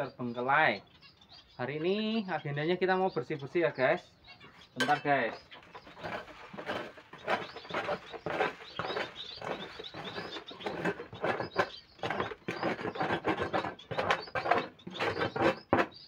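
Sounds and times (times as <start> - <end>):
tray scraping and knocking: 4.8 - 16.0.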